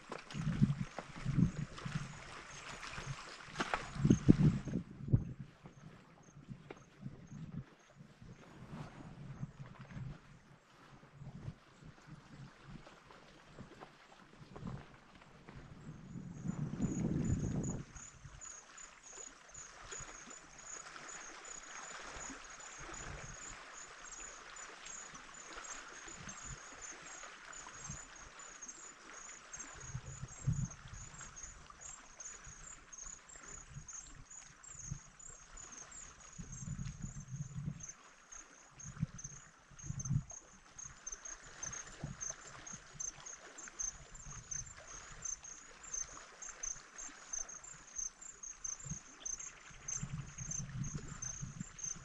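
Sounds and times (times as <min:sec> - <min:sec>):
wind buffeting microphone: 0:00.0 - 0:10.4, 0:14.4 - 0:18.4, 0:29.6 - 0:37.9, 0:38.8 - 0:43.2, 0:48.6 - 0:52.0
small waves lapping at shore: 0:00.0 - 0:52.0
insect chirping: 0:00.4 - 0:08.0, 0:16.1 - 0:52.0.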